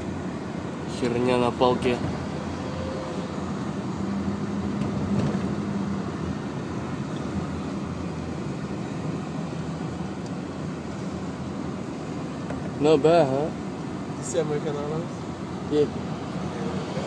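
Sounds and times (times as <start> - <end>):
car road noise from cabin: 0.0 - 17.0.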